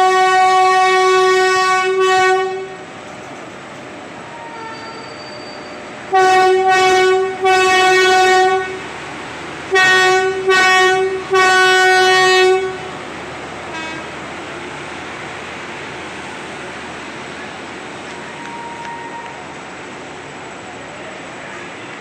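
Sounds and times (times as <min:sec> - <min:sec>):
locomotive horn blasts: 0:00.0 - 0:02.9, 0:04.3 - 0:08.9, 0:09.7 - 0:12.9, 0:13.7 - 0:14.1, 0:18.1 - 0:19.4.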